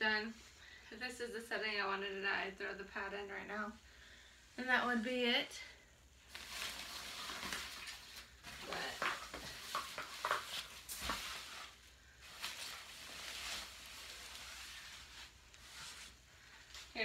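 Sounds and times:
rustling of fabric and plastic: 0:06.2 - 0:17.0.

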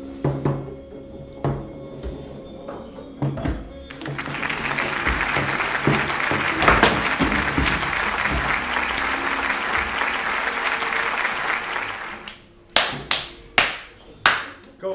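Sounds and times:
background music: 0:00.0 - 0:14.9
people clapping: 0:03.9 - 0:14.7.

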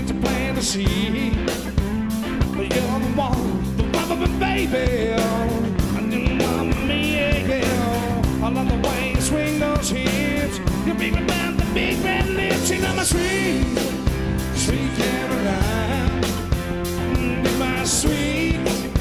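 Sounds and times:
bass guitar: 0:00.0 - 0:19.0
drums playing rock beat: 0:00.0 - 0:19.0
electric guitars: 0:00.0 - 0:19.0.

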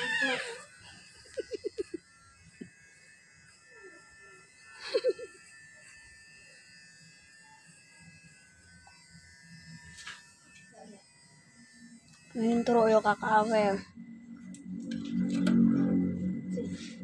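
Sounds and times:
electric hair clippers humming: 0:00.0 - 0:17.0
child giggling: 0:01.2 - 0:02.0, 0:04.8 - 0:05.4.

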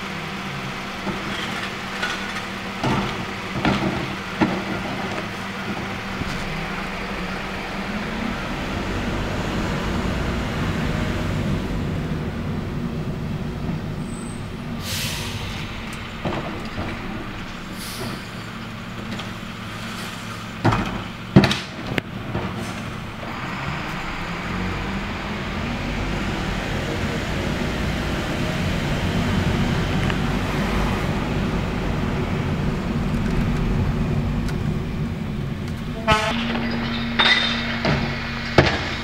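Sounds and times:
trash cart banging on hopper: 0:00.0 - 0:07.4, 0:15.0 - 0:23.4, 0:35.9 - 0:39.0
diesel truck engine running: 0:00.0 - 0:39.0
air brake hisses: 0:14.8 - 0:15.8, 0:17.7 - 0:18.4.

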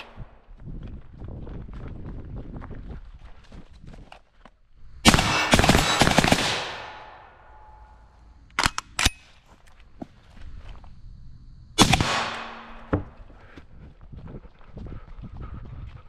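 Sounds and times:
rifle shots with echo: 0:05.0 - 0:07.7, 0:11.8 - 0:12.9.

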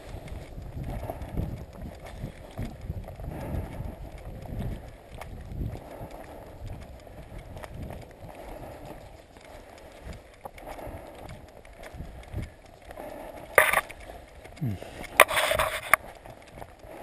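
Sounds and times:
footsteps on stony dirt trail: 0:00.0 - 0:17.0
wind on microphone: 0:00.0 - 0:17.0
microphone handling noise: 0:13.6 - 0:13.9, 0:14.6 - 0:16.0.

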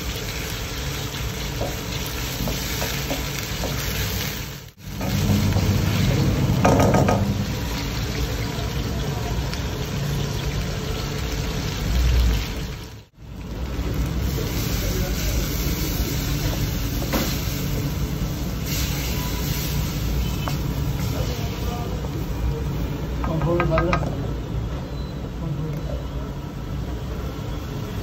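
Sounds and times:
low burner rumble: 0:00.0 - 0:28.0
meat sizzling and bubbling in a wok: 0:00.0 - 0:28.0.

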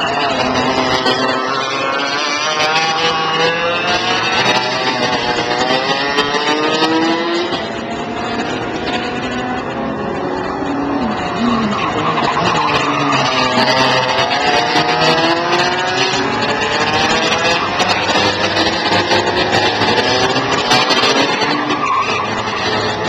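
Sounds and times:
go-kart engines buzzing: 0:00.0 - 0:23.0.

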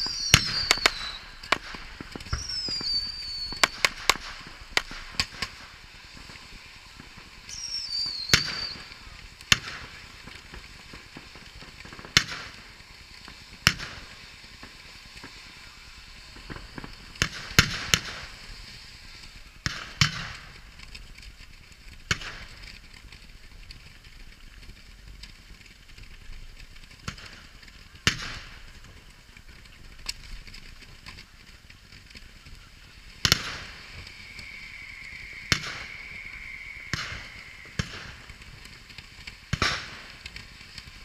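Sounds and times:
firework hissing crackle: 0:00.0 - 0:41.0
firework reports: 0:00.0 - 0:41.0.

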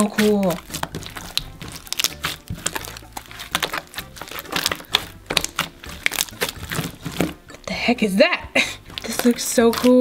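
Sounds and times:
slime clicking and popping: 0:00.0 - 0:07.4.

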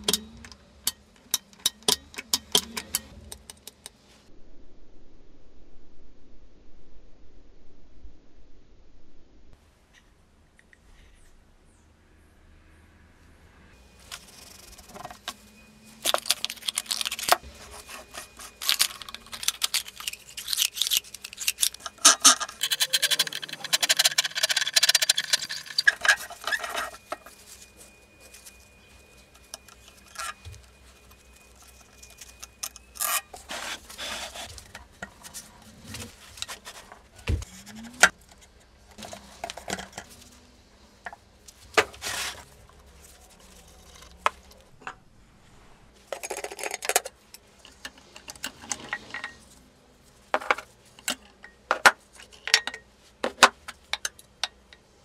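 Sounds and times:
metal scraping: 0:13.7 - 0:40.6.

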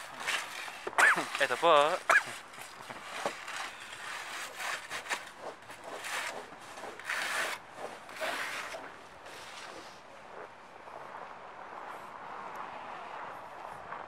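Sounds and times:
snow brush scraping a car: 0:00.0 - 0:10.0.

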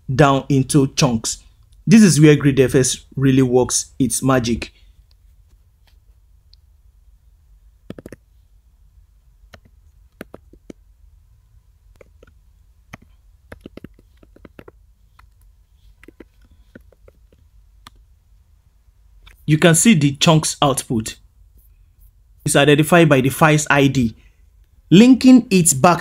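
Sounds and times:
keyboard keys clicking: 0:12.0 - 0:15.4.

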